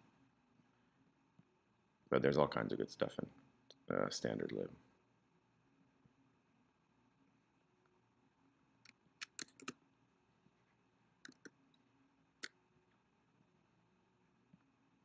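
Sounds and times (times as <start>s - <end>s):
keyboard and mouse clicks: 8.8s - 9.8s, 11.2s - 11.6s.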